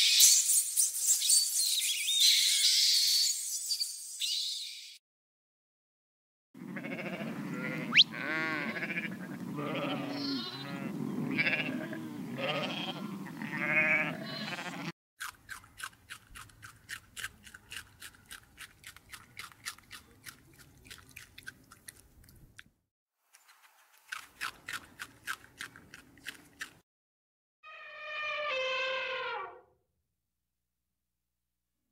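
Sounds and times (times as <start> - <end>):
sheep bleating: 6.6 - 14.9
guinea pigs crunching vegetables: 15.2 - 22.7, 23.3 - 26.8.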